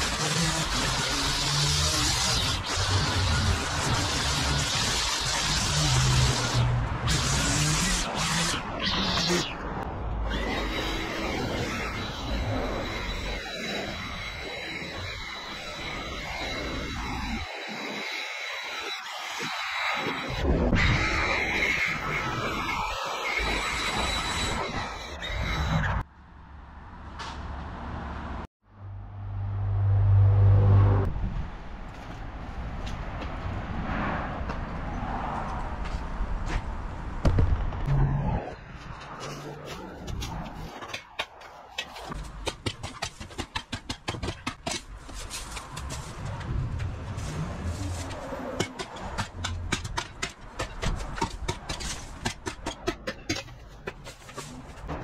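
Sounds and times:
outdoor background noise: 0.0s - 55.0s
vehicle engine humming: 26.3s - 31.5s.

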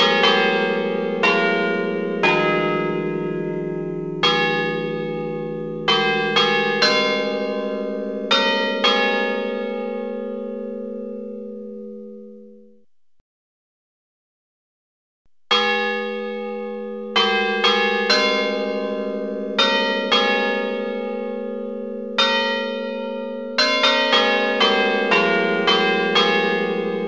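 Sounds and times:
church bells ringing: 0.0s - 12.7s, 15.5s - 27.0s.

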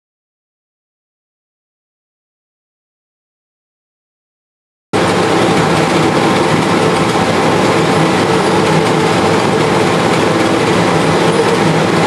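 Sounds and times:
organ blower rushing air: 5.0s - 12.0s.

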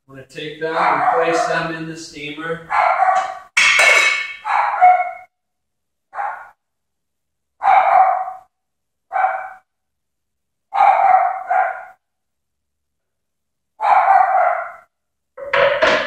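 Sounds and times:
dog barking: 0.8s - 1.8s, 2.7s - 3.5s, 4.4s - 5.3s, 6.1s - 6.6s, 7.6s - 8.5s, 9.1s - 9.7s, 10.7s - 12.0s, 13.8s - 14.9s.

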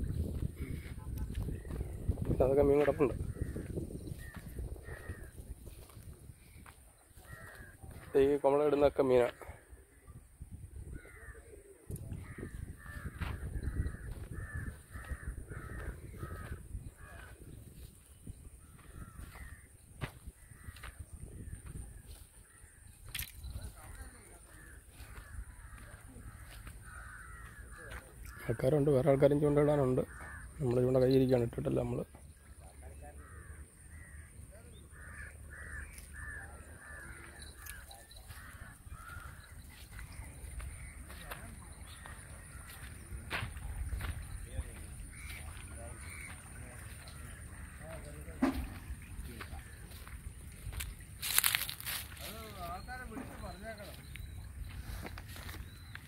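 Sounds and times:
low wind rumble: 0.0s - 6.6s
bird calling: 0.0s - 10.1s, 10.9s - 56.0s
crow cawing: 0.6s - 10.0s, 10.9s - 17.5s, 18.5s - 31.4s, 32.0s - 56.0s.

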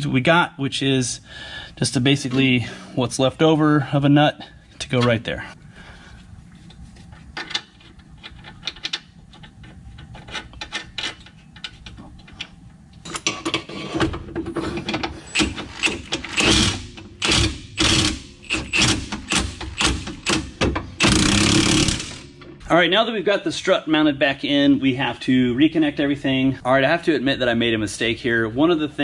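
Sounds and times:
hand ratchet clicking: 15.3s - 22.2s.

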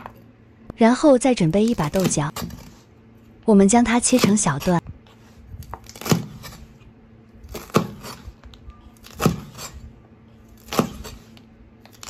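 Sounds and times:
cleaver chopping green beans: 4.0s - 4.8s, 5.6s - 6.7s, 7.5s - 8.3s, 9.0s - 9.8s, 10.6s - 12.0s.

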